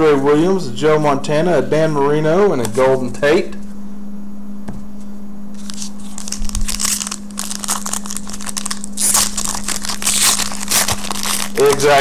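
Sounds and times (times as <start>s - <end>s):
steady low hum: 0.0s - 12.0s
foil wrapper crackling: 5.6s - 12.0s.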